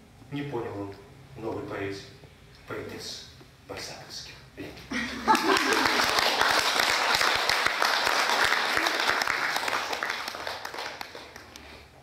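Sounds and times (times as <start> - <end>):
audience applauding: 5.3 - 11.8.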